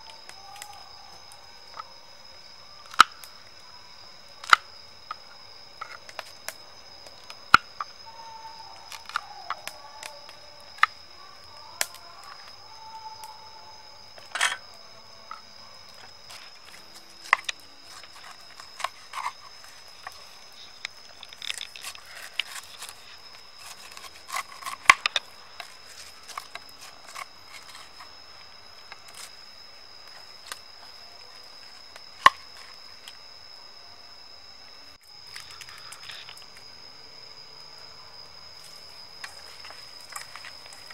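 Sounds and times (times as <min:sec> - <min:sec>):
high-pitched whine: 0:00.0 - 0:40.9
knife cutting pineapple rind: 0:21.3 - 0:25.2.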